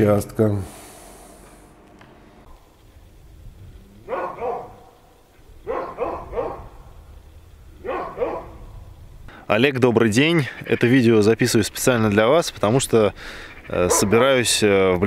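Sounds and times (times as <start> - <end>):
dog barking: 4.1 - 5.0, 5.6 - 6.7, 7.8 - 8.6, 13.9 - 14.2.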